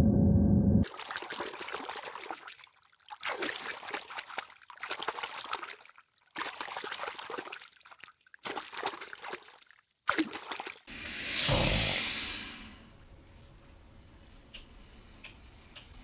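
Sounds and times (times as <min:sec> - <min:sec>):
water splashing and trickling: 0:00.8 - 0:11.2.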